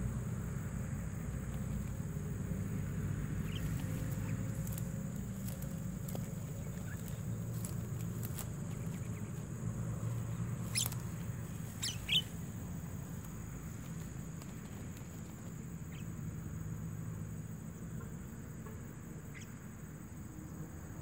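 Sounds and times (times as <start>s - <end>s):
steady low rumble: 0.0s - 16.4s
short sharp bird calls: 10.6s - 12.4s.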